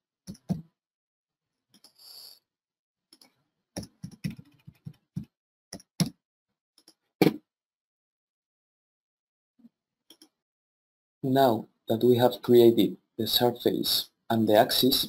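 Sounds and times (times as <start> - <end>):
keyboard typing: 3.8 - 6.1.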